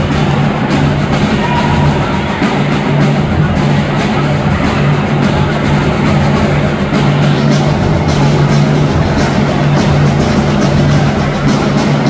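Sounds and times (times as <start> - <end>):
marching drumline playing: 0.0 - 12.0.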